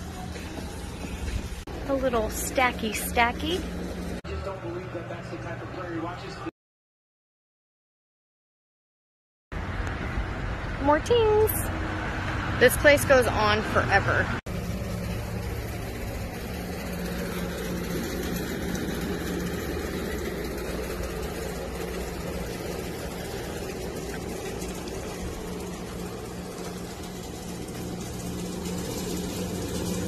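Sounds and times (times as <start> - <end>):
motor humming: 14.5 - 30.0.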